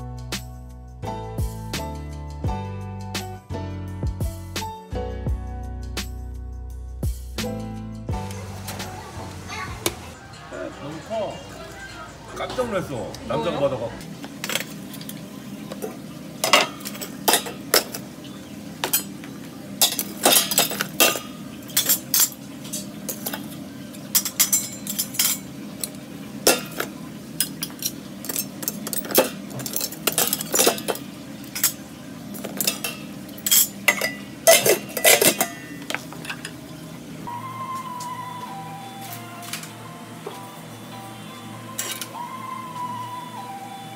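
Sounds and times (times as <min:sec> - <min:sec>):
metal pots clanking: 0:14.4 - 0:18.1, 0:18.8 - 0:19.2, 0:19.8 - 0:36.6, 0:41.8 - 0:42.2.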